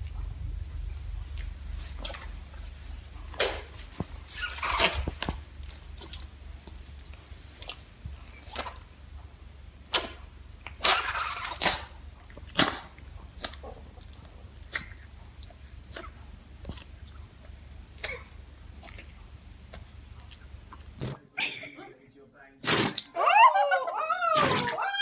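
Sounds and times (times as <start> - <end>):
small dog sneezing: 10.8 - 12.0.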